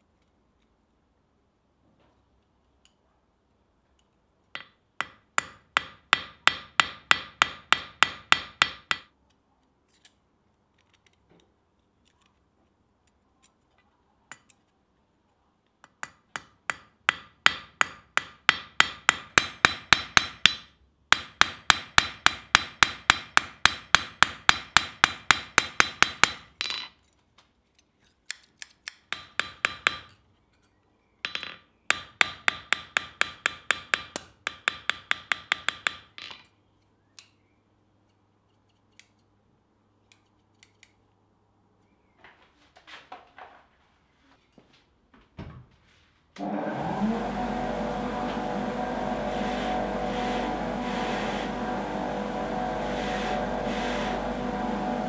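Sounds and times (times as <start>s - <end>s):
hammer striking metal on anvil: 4.6s - 9.1s, 16.0s - 26.5s, 29.1s - 30.1s.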